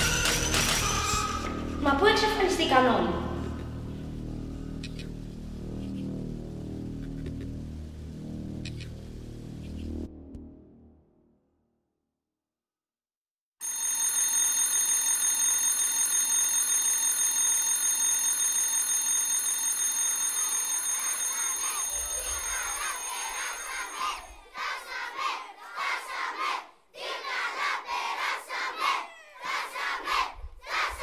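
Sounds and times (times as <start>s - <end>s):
electric school bell ringing: 0.0s - 1.8s, 13.6s - 24.5s
children shouting and cheering: 20.4s - 31.0s.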